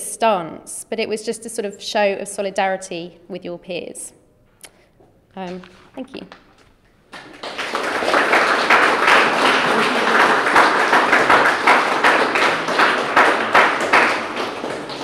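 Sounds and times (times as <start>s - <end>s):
audience applauding: 7.1s - 15.0s.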